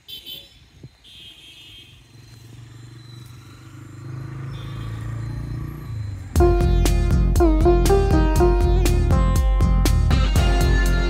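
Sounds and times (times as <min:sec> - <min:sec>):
motor engine humming: 0:05.0 - 0:11.0.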